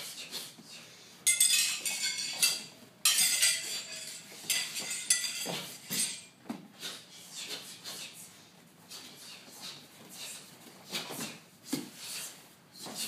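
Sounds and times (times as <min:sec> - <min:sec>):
metal weapons clinking: 0:01.3 - 0:06.4.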